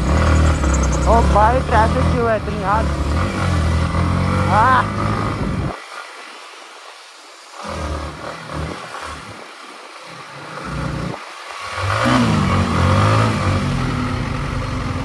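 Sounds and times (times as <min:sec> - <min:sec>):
motorcycle engine: 0:00.0 - 0:05.8, 0:10.3 - 0:15.0.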